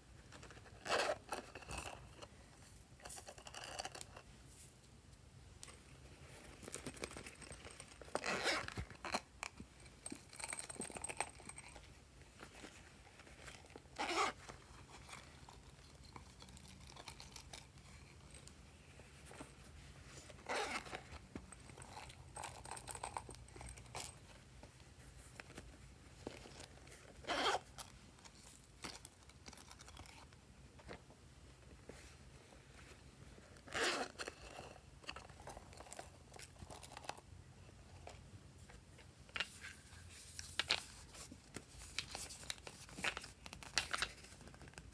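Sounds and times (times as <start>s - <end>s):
crinkling rustling scrapes: 5.7s - 31.1s, 38.0s - 44.9s.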